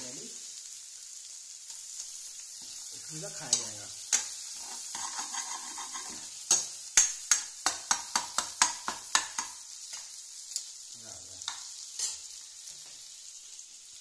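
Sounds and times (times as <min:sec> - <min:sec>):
chicken sizzling in a pan: 0:00.0 - 0:14.0
spoon scraping a pan: 0:01.7 - 0:10.7, 0:11.4 - 0:13.1.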